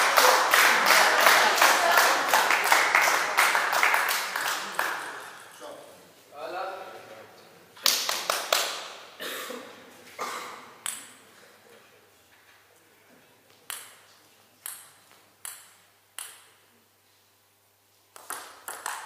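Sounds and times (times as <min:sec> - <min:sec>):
table tennis ball bouncing: 0:14.6 - 0:16.6, 0:18.2 - 0:19.0.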